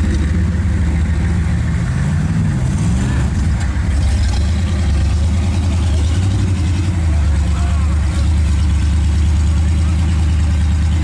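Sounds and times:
diesel engine revving: 0.0 - 11.0.

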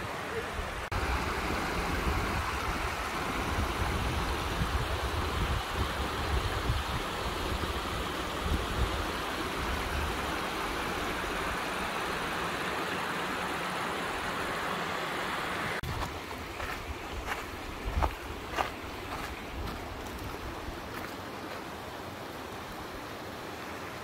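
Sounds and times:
wind rumbling on microphone: 0.6 - 11.6, 15.8 - 21.0
stream trickling over rocks: 0.8 - 24.0.

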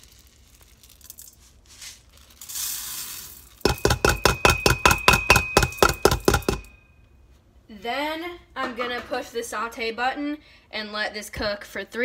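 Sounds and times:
oats pouring into pot: 0.0 - 4.3
steel pot ringing: 3.6 - 7.0
cup tapping against pot: 3.7 - 6.7.

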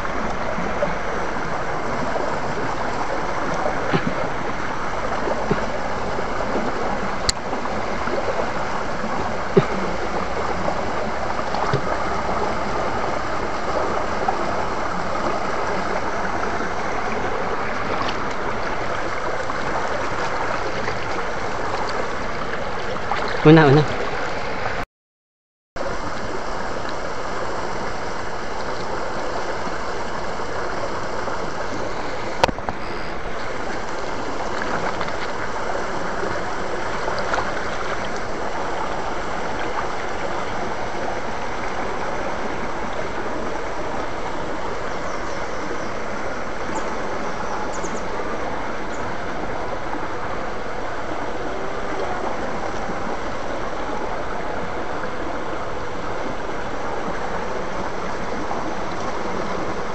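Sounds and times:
stream water running over rocks: 0.0 - 24.8, 25.8 - 59.9.

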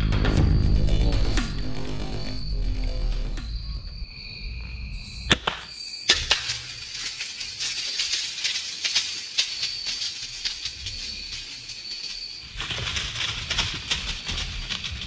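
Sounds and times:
high insect trill: 0.3 - 15.0
light clicks and crackles: 6.1 - 11.8.

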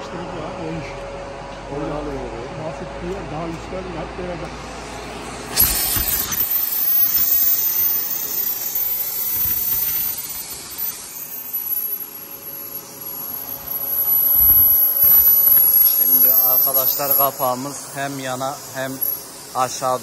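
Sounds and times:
thin high whine: 0.0 - 20.0
power tool hissing on steel: 4.5 - 20.0.

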